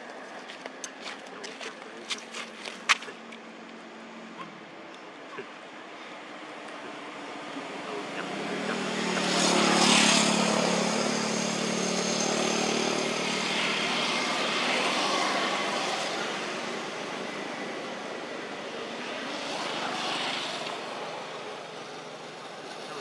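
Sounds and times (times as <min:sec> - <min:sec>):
motor engine passing: 0:06.8 - 0:23.0.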